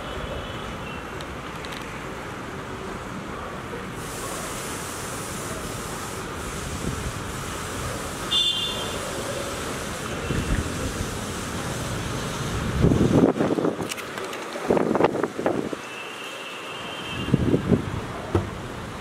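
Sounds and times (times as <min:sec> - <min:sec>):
distant city traffic hum: 0:00.0 - 0:19.0
wind buffeting microphone: 0:12.6 - 0:13.9, 0:17.3 - 0:18.8.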